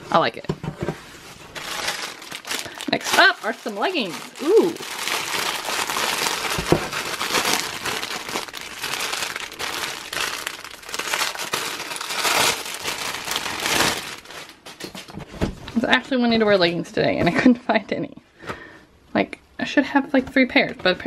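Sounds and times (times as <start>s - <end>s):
plastic bag crinkling: 1.2s - 15.1s.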